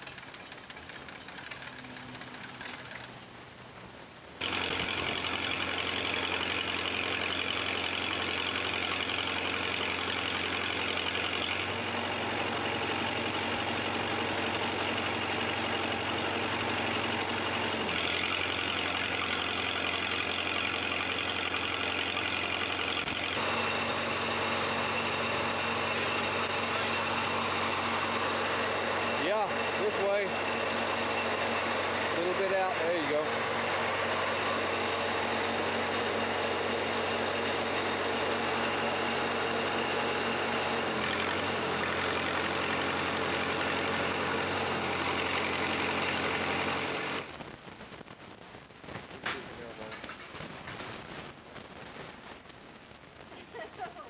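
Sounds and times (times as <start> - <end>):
welder engine running: 0.0 - 48.0
welding arc hissing crackle: 47.2 - 54.0.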